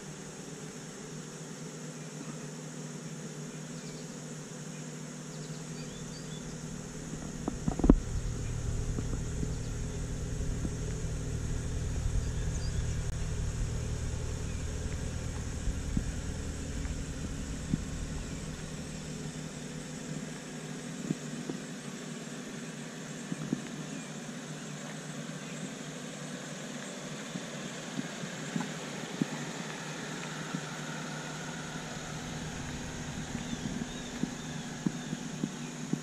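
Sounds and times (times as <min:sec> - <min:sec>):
car engine idling: 0:05.4 - 0:36.0
car engine starting: 0:05.6 - 0:24.5, 0:26.6 - 0:36.0.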